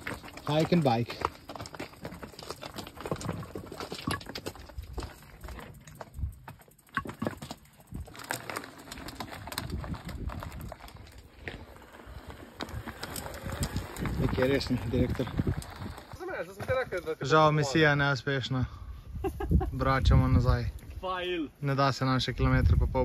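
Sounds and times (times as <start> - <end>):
footsteps crunching on stones: 0.0 - 17.4
stones and bike clicking: 0.0 - 18.2.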